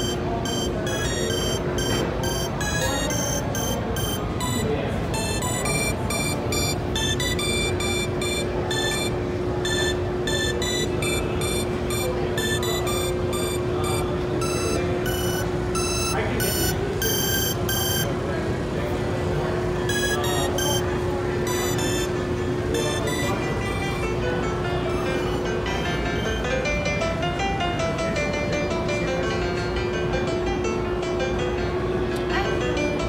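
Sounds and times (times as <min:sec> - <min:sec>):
bright electronic synth notes: 0:00.0 - 0:18.0
store murmur: 0:00.0 - 0:33.0.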